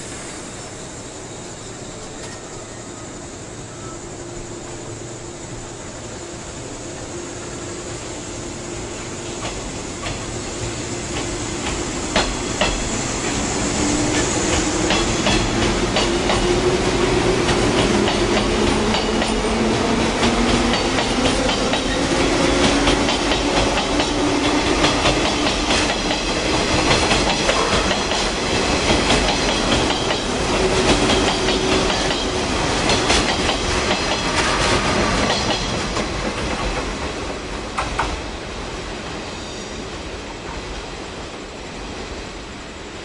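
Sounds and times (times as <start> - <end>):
train wheels clattering: 9.3 - 38.2.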